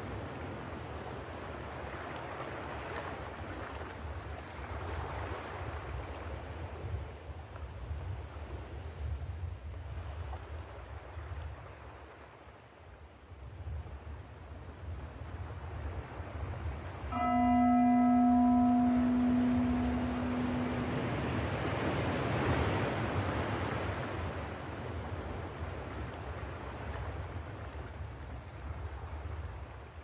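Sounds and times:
deep bell ringing: 17.1 - 22.2
sea surf washing: 17.2 - 25.8.

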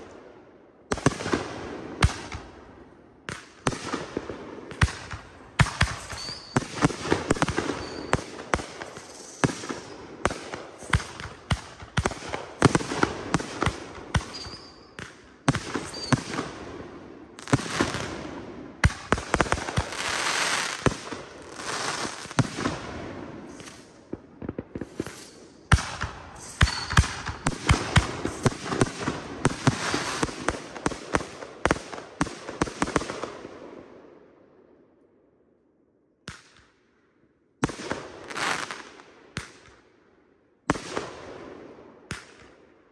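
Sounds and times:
fireworks bangs: 3.7 - 16.6, 17.4 - 33.2
fireworks crackling and fizzing: 4.7 - 16.6, 17.4 - 32.0.

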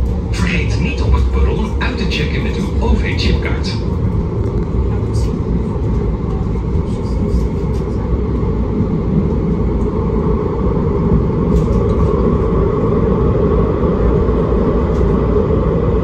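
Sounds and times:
tram rumbling on rails: 0.0 - 16.0.

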